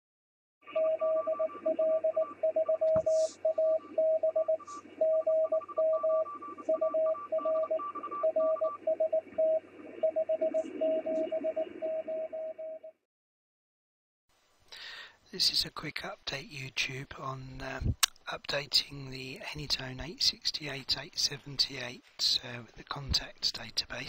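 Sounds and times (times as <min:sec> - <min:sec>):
morse code tone: 0:00.7 - 0:13.0
radio band noise hiss: 0:02.9 - 0:05.0, 0:14.8 - 0:24.0.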